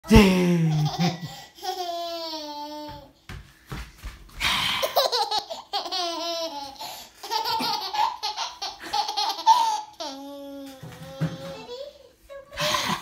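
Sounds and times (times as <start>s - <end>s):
baby laughing: 0.7s - 3.0s, 4.8s - 12.0s.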